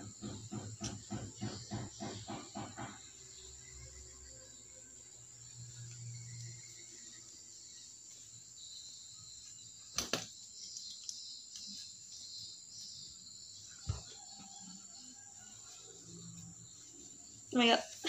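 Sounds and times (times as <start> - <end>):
sharp knocks: 0.0 - 3.2.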